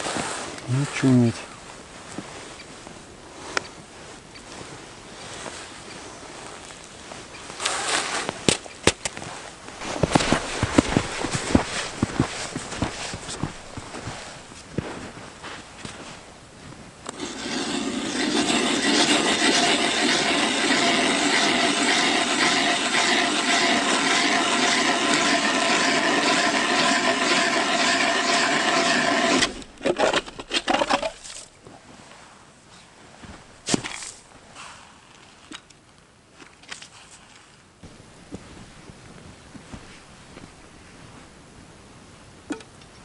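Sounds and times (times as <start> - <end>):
ice auger blades scraping ice: 6.5 - 16.3, 17.0 - 31.5, 33.6 - 35.6.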